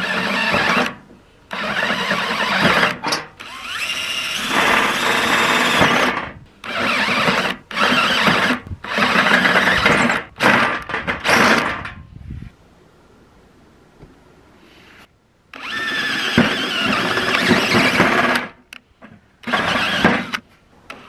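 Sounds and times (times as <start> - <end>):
drill boring through sheet metal: 1.6 - 10.6, 15.6 - 18.5, 19.5 - 20.4.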